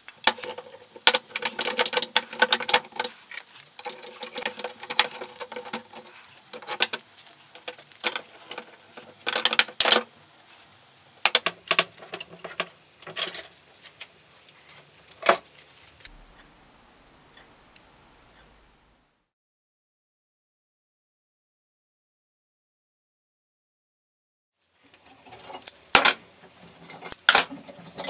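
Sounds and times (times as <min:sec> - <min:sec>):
faint hum: 0:15.8 - 0:19.3.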